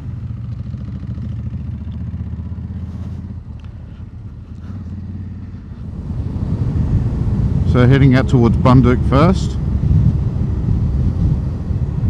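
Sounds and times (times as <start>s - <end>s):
motorcycle engine droning: 0.0s - 12.0s.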